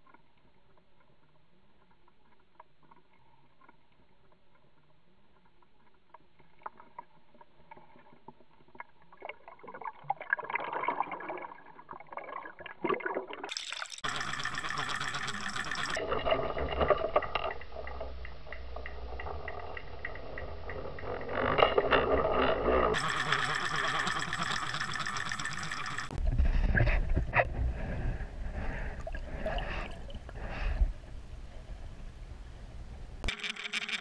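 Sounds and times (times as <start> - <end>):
water rushing and gurgling: 13.2 - 21.5, 22.9 - 27.6.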